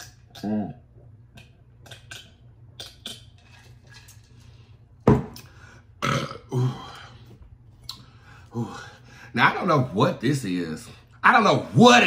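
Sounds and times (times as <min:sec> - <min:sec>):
sips and mouth sounds: 0:00.0 - 0:04.6.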